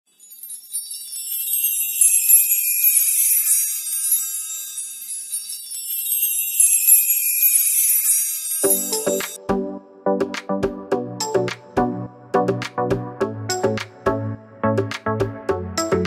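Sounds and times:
tinkling chimes: 0:00.1 - 0:09.4.

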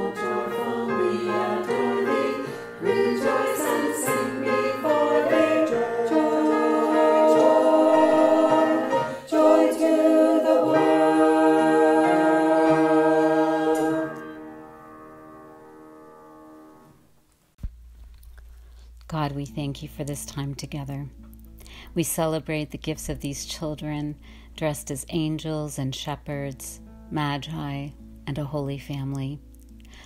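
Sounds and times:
choir singing a hymn: 0:00.0 - 0:14.5
piano: 0:00.0 - 0:17.3.

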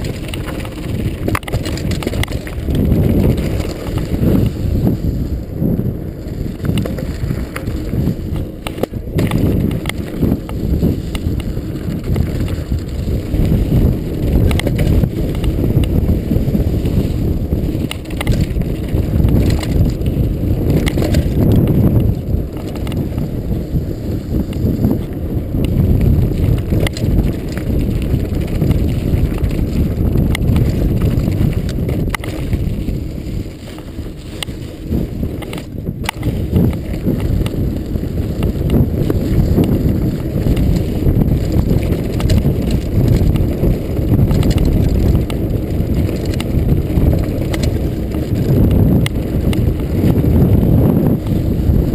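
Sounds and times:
bike clicks and rattles: 0:00.0 - 0:51.9
bike tyres rumbling on dirt: 0:00.0 - 0:51.9
wind on microphone: 0:00.0 - 0:51.9.

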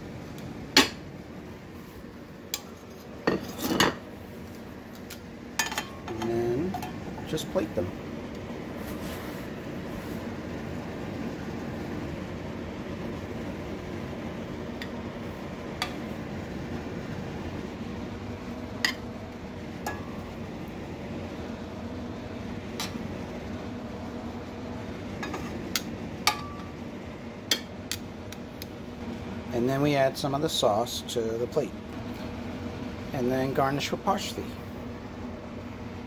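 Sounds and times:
steady low hum: 0:00.0 - 0:36.0
metal tongs clinking on pan: 0:05.6 - 0:07.0.

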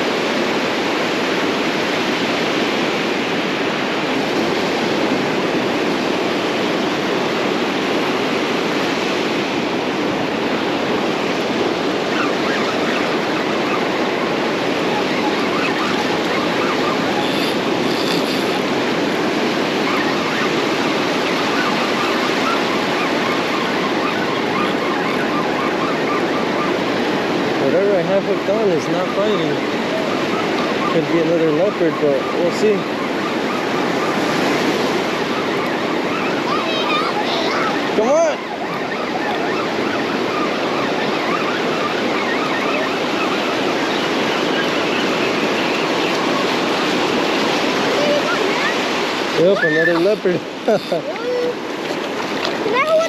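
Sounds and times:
ocean surf breaking: 0:00.0 - 0:53.0.

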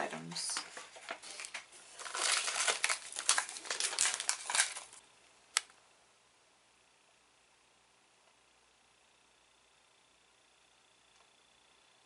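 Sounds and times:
snack packaging crinkling: 0:00.4 - 0:05.0.

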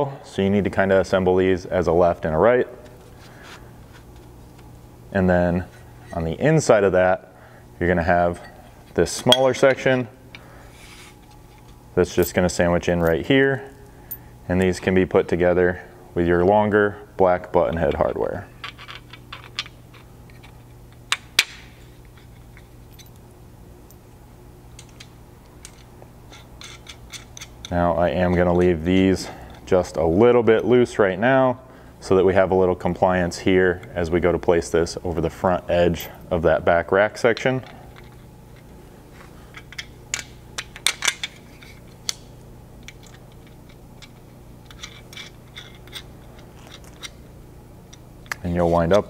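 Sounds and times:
low room hum: 0:00.0 - 0:49.0
metal bolts clicking and clinking: 0:17.6 - 0:23.2, 0:24.7 - 0:28.7, 0:39.5 - 0:42.2, 0:42.8 - 0:47.2.

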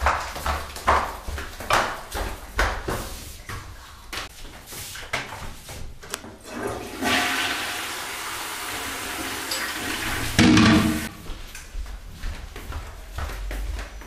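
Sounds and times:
light footsteps: 0:00.0 - 0:06.2, 0:11.0 - 0:14.0
toilet flushing: 0:06.4 - 0:11.1.

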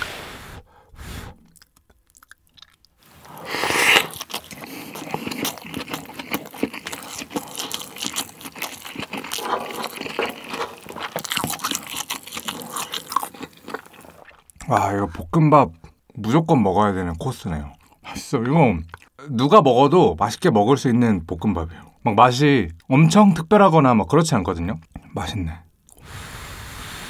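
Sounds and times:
chewing food close up: 0:01.4 - 0:15.9, 0:17.1 - 0:19.2.

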